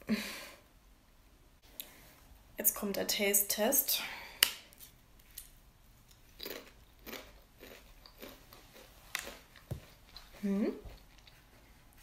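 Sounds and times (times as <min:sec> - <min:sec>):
chip crunching: 0:04.8 - 0:11.6
chewing crunches: 0:05.4 - 0:11.6.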